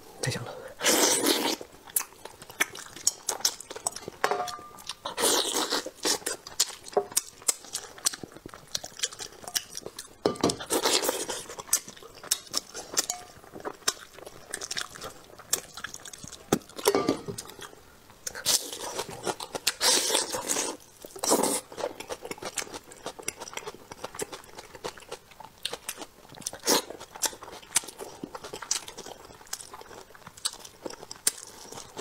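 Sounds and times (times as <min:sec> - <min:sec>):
chewing: 0:00.8 - 0:32.0
metal bowl clinks: 0:04.2 - 0:04.8.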